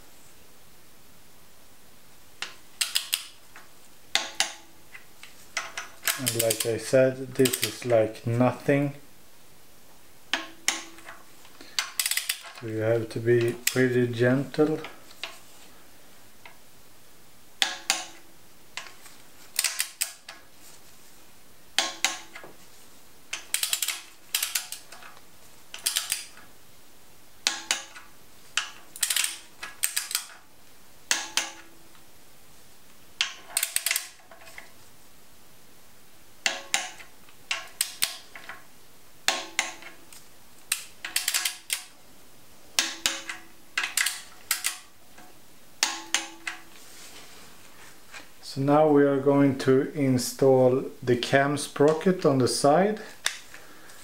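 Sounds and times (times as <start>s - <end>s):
torque wrench ratcheting clicks: 23.3s - 24.9s.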